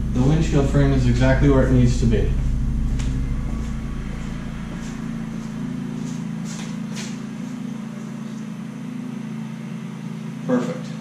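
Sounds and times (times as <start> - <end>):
low hum: 0.0 - 11.0
footsteps on concrete: 2.8 - 8.5.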